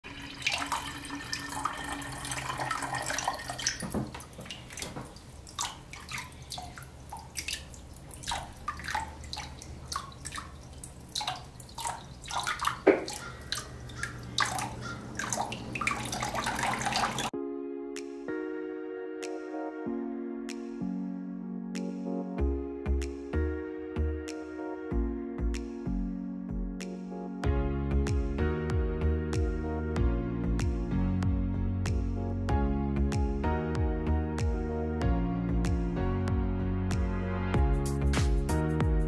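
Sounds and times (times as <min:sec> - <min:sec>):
water trickling and splashing: 0:00.0 - 0:17.3
background music: 0:16.5 - 0:39.0.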